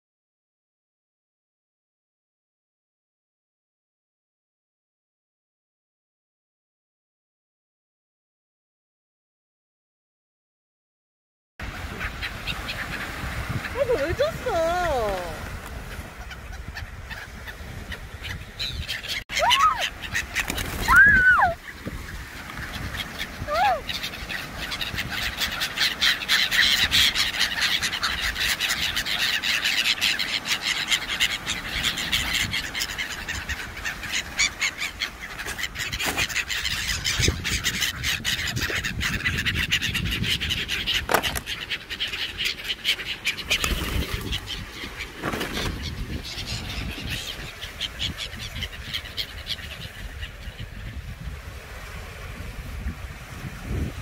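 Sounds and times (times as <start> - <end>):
wind rumble on microphone: 11.6 - 25.4, 35.7 - 41.5, 43.4 - 54.0
surf: 11.6 - 54.0
birds flapping wings: 19.0 - 37.0, 40.8 - 50.1.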